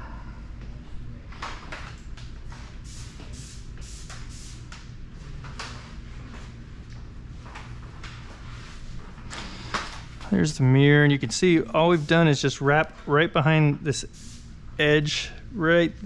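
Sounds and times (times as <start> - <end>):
steady low hum: 0.0 - 16.0
soft shuffling and rustling: 5.3 - 13.1.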